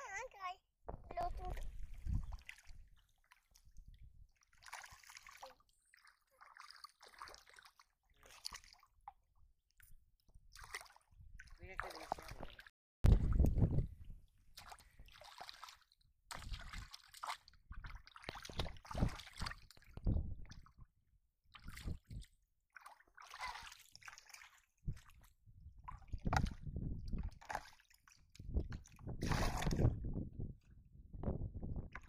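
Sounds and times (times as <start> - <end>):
muddy water splashing: 1.1 - 9.2, 10.5 - 13.8, 14.4 - 20.8, 21.5 - 30.0.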